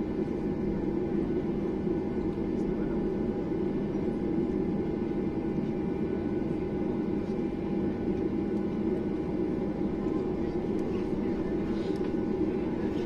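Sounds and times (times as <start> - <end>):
faint steady whine: 0.0 - 13.0
jet engine cabin drone: 0.0 - 13.0.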